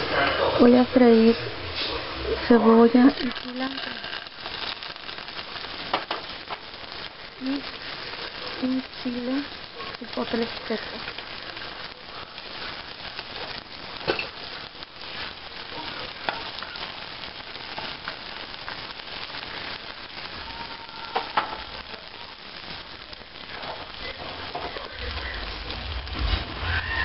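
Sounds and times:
onion sizzling in hot oil: 0:00.0 - 0:27.0
loud oil pops: 0:05.9 - 0:06.7.

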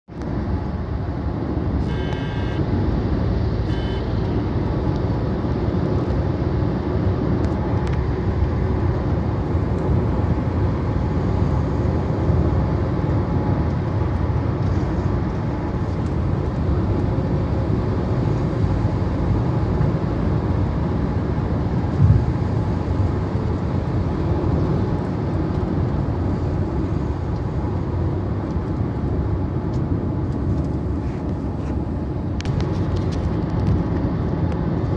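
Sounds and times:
road and engine noise in car: 0:00.0 - 0:34.9
short high beeps: 0:01.9 - 0:02.6.

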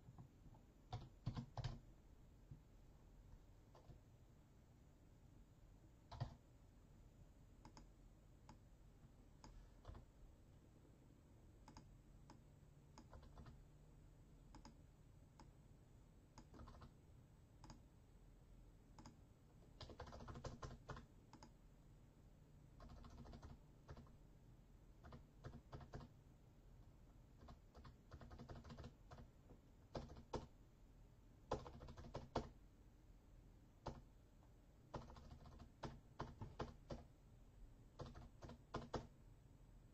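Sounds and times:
typing on computer keyboard: 0:00.9 - 0:01.8, 0:06.1 - 0:06.4, 0:11.7 - 0:13.6, 0:16.4 - 0:16.9, 0:19.8 - 0:21.5, 0:22.8 - 0:24.2, 0:25.0 - 0:26.1, 0:27.4 - 0:30.5, 0:31.5 - 0:32.6, 0:33.8 - 0:34.1, 0:34.9 - 0:37.1, 0:38.0 - 0:39.1.

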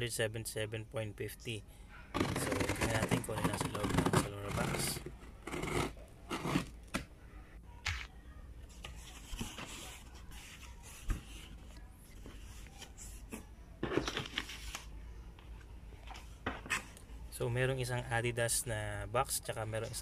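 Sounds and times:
cardboard box rustling and scraping: 0:02.2 - 0:06.7.

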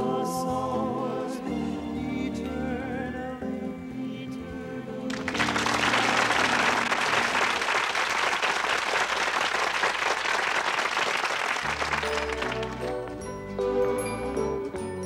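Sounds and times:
music: 0:00.0 - 0:08.0, 0:11.2 - 0:15.0
audience applauding: 0:05.1 - 0:13.2.

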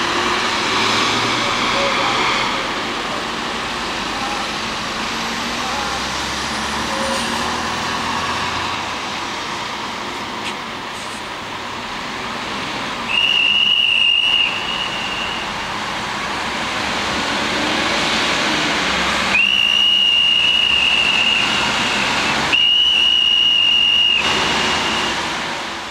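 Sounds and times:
traffic noise: 0:00.0 - 0:25.9
high-pitched whistle blasts: 0:13.1 - 0:15.5, 0:19.3 - 0:25.2.

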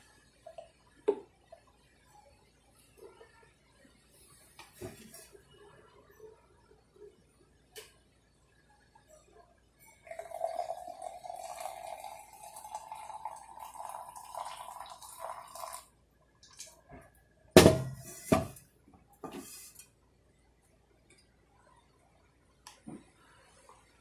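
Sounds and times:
water pouring from kettle: 0:10.0 - 0:16.8
kettle set down clunks: 0:17.6 - 0:18.6.

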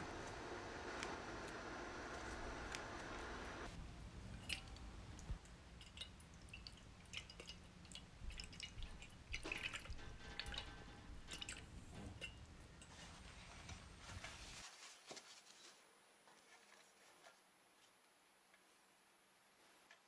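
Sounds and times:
small water splashes and drips: 0:04.4 - 0:12.5.

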